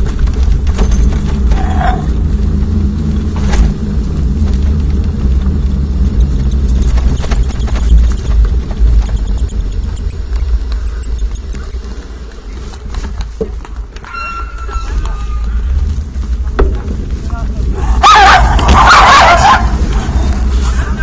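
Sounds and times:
sharp knocks and rattles: 0.0 - 14.2, 16.3 - 17.2
stroller wheels rolling: 0.0 - 21.0
wind noise on microphone: 0.0 - 21.0.

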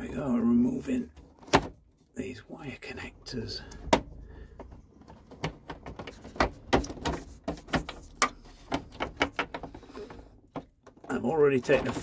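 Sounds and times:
plastic connectors clicking and knocking: 3.7 - 12.0.

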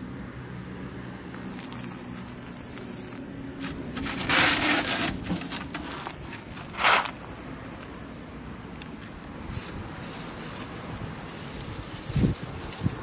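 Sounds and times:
crunching scrape: 1.4 - 7.3
plastic tray clicks and scrapes: 3.6 - 7.1.

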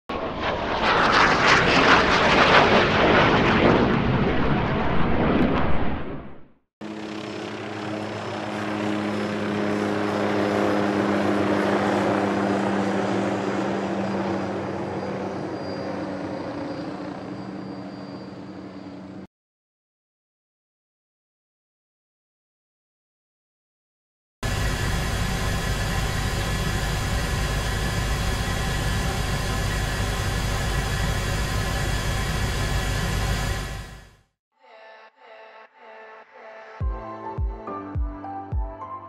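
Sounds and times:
rushing aircraft noise: 0.1 - 19.3, 24.4 - 34.3
helicopter rotor and engine drone: 6.8 - 19.3, 24.4 - 34.2
high engine whine: 6.8 - 19.3, 24.4 - 34.3.

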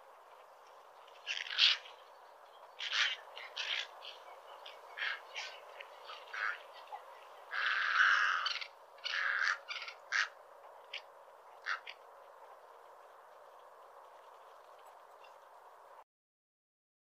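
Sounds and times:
egret harsh raspy calls: 1.3 - 1.9, 2.8 - 12.0.

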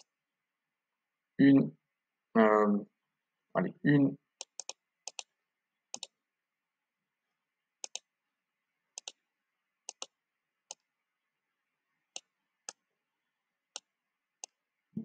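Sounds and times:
computer mouse clicking: 4.4 - 5.3, 5.9 - 6.1, 7.8 - 8.1, 9.0 - 9.2, 9.9 - 10.1.

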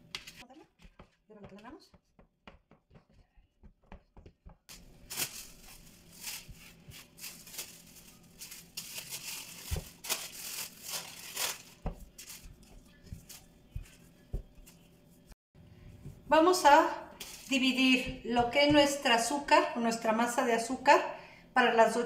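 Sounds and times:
plastic wrapping crinkling: 4.7 - 13.5, 17.2 - 17.6.

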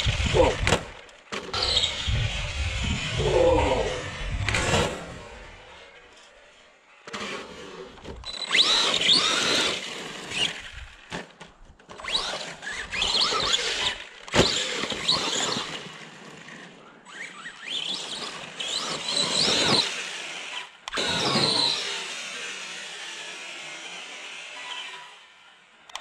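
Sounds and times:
electric motor whining: 0.0 - 6.3, 7.0 - 11.1, 17.1 - 25.5.

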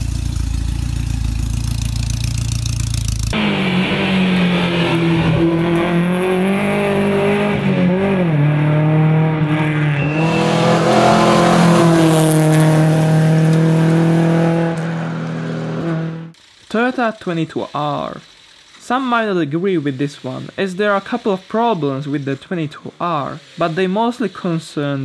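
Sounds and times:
rally car engine revving: 0.0 - 16.4.

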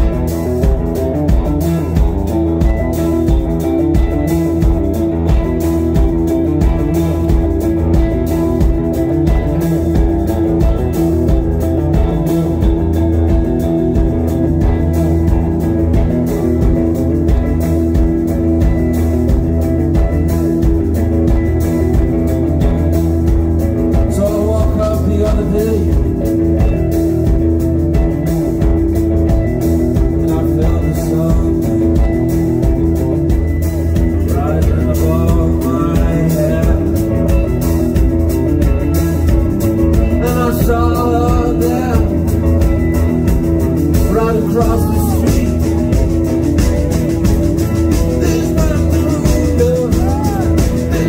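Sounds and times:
live rock band playing: 0.0 - 51.0
person singing: 23.9 - 26.4, 30.0 - 32.4, 34.1 - 37.5, 40.0 - 42.5, 43.9 - 46.4, 47.6 - 51.0.

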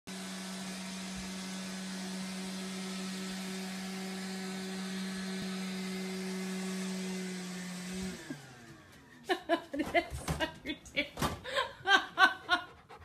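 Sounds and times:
robot vacuum cleaner running: 0.1 - 9.2.

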